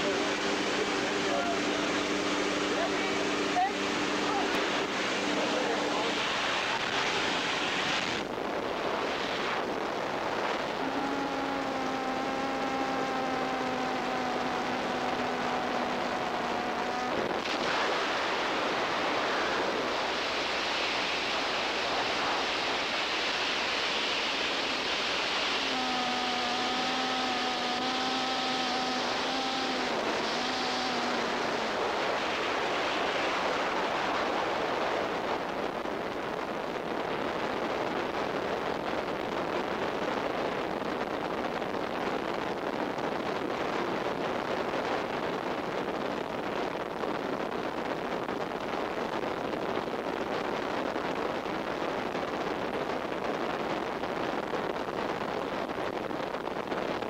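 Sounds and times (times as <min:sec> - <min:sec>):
wind rushing over microphone: 0:00.0 - 0:57.0
steady pitched tone: 0:09.1 - 0:34.0.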